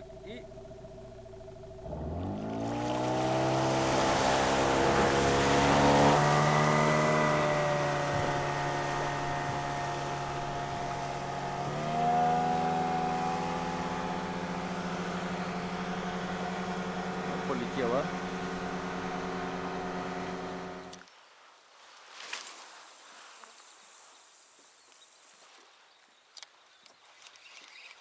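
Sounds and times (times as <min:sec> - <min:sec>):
outboard motor running at speed: 0:00.0 - 0:21.0.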